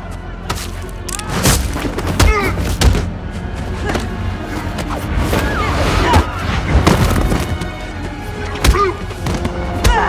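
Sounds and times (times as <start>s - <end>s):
action film score: 0.0s - 10.0s.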